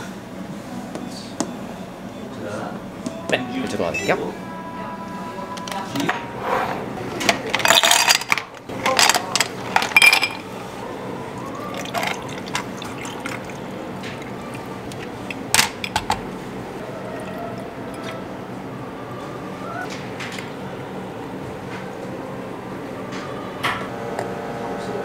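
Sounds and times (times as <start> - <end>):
ice cubes clinking into glasses: 7.5 - 10.5
water pouring over ice: 11.7 - 13.7.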